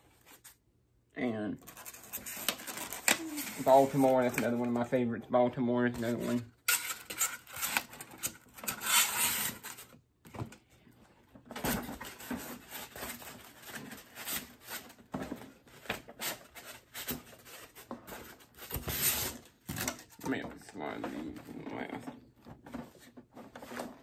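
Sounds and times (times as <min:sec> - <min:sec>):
cardboard scraping and rustling: 0:11.5 - 0:24.0.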